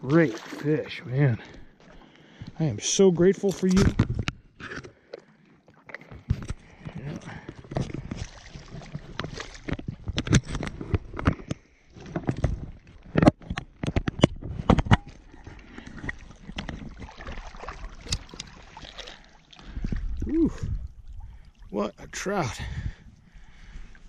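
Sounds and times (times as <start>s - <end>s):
water splashing and sloshing: 0.0s - 24.0s
wind rumbling on microphone: 19.6s - 23.9s.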